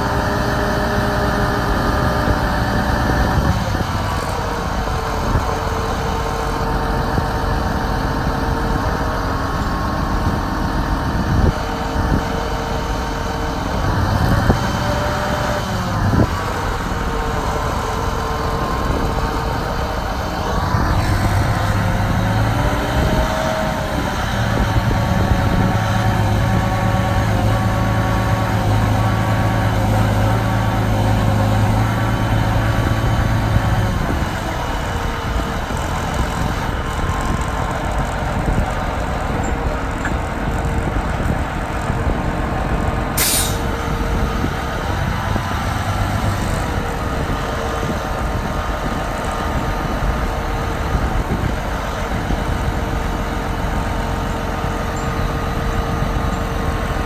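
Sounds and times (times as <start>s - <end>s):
diesel engine humming: 0.0s - 57.0s
wind buffeting microphone: 0.0s - 57.0s
air hiss: 43.2s - 43.6s.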